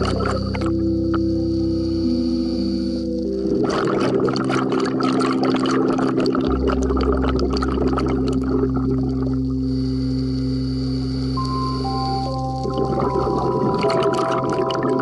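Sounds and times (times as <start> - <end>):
dense water-like crackling: 0.0 - 1.2, 3.2 - 9.7, 11.4 - 15.0
held chords over low bass: 0.0 - 15.0.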